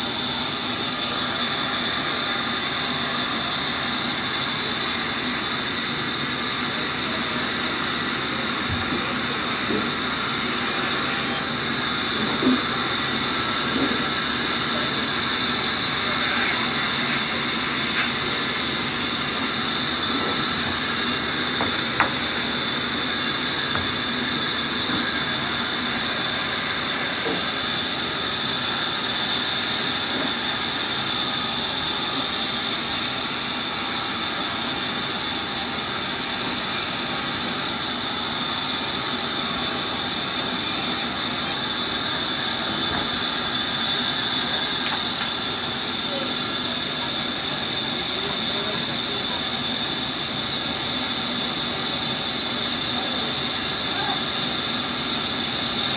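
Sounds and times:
band saw ripping planks: 12.1s - 29.2s.

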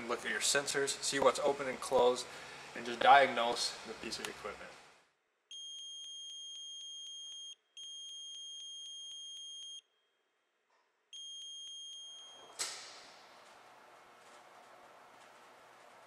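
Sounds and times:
room noise hiss: 0.0s - 5.1s
electronic alarm beep: 5.5s - 9.8s, 11.1s - 12.6s.

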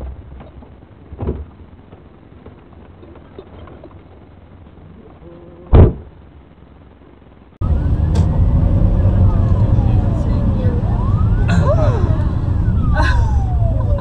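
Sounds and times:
road and cabin rumble: 0.0s - 14.0s
loud short thump: 5.7s - 6.1s
loud vehicle noise: 7.6s - 14.0s.

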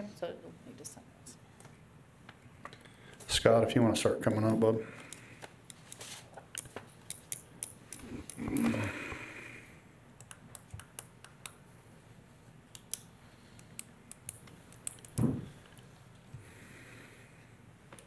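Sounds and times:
short low vocal sound: 8.1s - 9.3s.

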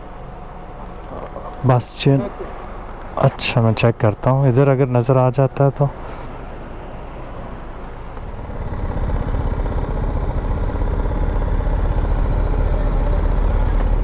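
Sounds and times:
motorcycle engine running: 8.2s - 14.0s.

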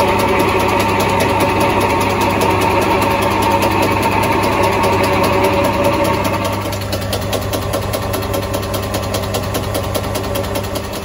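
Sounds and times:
metal lathe humming: 0.0s - 11.0s.

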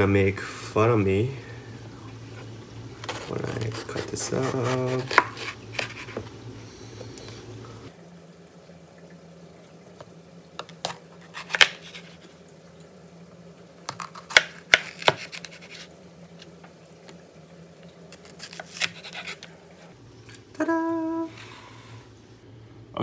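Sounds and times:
knife cutting and scraping: 3.0s - 6.2s, 10.8s - 12.2s, 14.0s - 15.9s, 18.1s - 19.9s.

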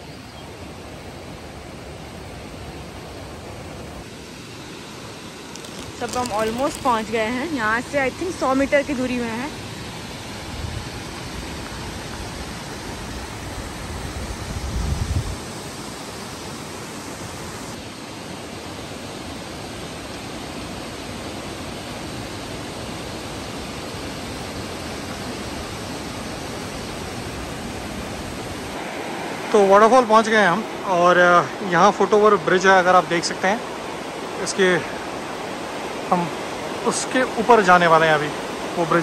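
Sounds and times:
waterfall rushing: 0.2s - 39.0s.

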